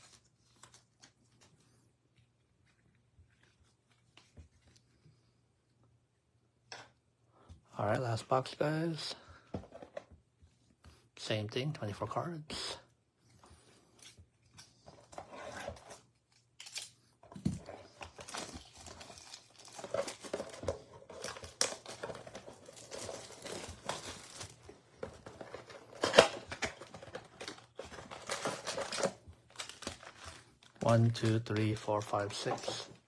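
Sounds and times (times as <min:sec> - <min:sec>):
plastic wrapping crinkling: 0:17.9 - 0:33.0.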